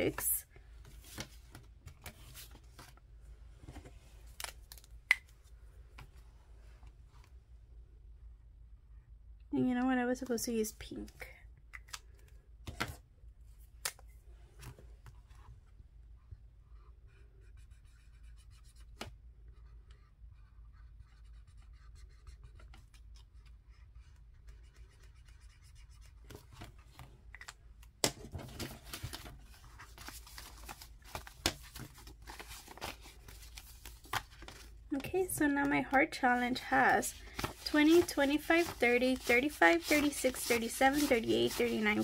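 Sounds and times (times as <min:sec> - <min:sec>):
marker scratching on paper: 0:16.8 - 0:26.4, 0:36.3 - 0:42.0
paper banknotes rustling: 0:28.4 - 0:42.0.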